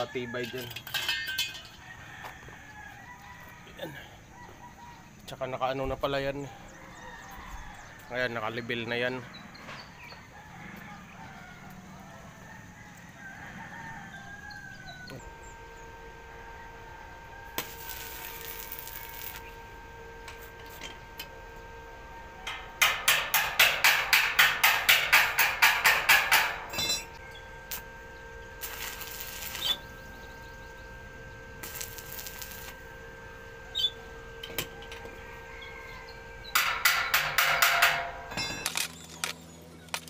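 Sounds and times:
wavering high-pitched call: 29.1s - 30.9s, 33.6s - 34.1s.

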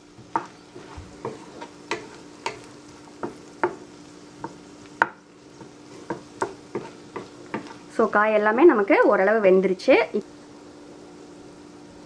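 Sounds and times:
faint sizzle: 0.0s - 12.0s
wooden spatula knocking on pan: 0.2s - 7.8s.

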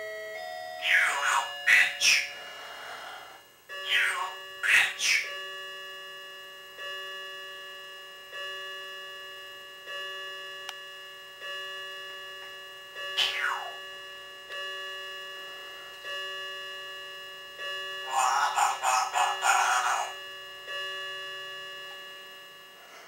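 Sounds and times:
parrot harsh pulsing call: 0.8s - 5.4s, 13.2s - 13.8s, 18.0s - 20.2s.

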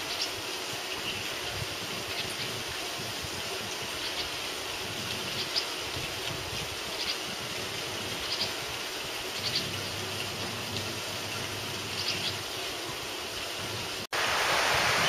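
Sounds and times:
bird chirping: 11.9s - 12.5s.

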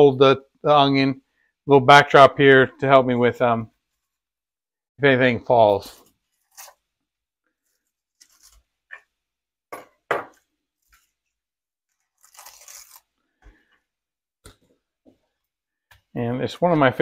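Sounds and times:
dry onion skin rustling: 5.7s - 8.9s, 10.8s - 13.7s
knife crunching through onion: 7.7s - 9.0s, 11.9s - 13.2s.

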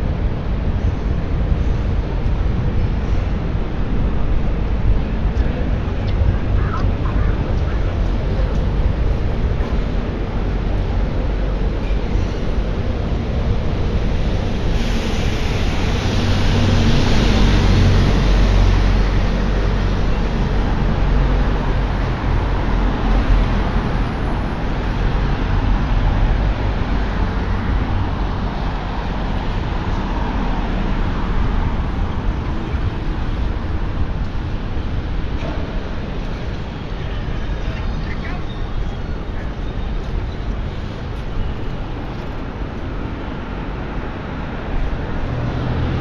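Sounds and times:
bus engine rumble: 0.0s - 46.0s
traffic noise: 0.0s - 46.0s
tyres hissing on wet road: 13.8s - 34.2s.

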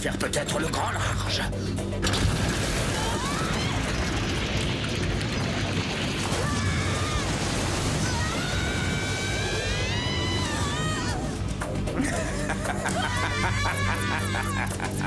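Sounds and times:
cartoon fiery explosion: 2.0s - 10.7s.

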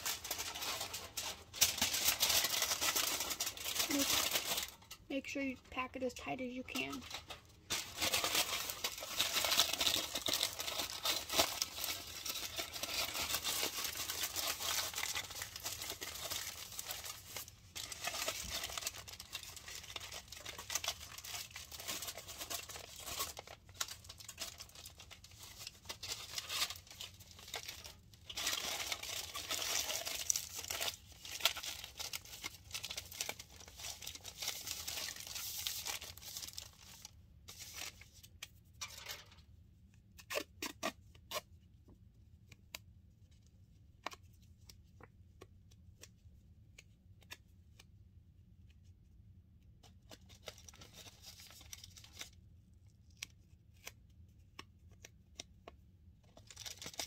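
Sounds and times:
aluminium foil crinkling: 0.0s - 39.5s, 50.0s - 52.4s, 56.2s - 57.0s.

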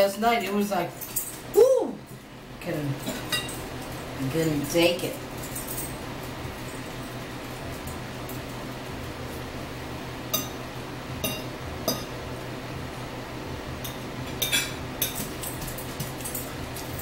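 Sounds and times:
steady low hum: 0.0s - 17.0s
utensil clinking against bowl: 13.8s - 17.0s.

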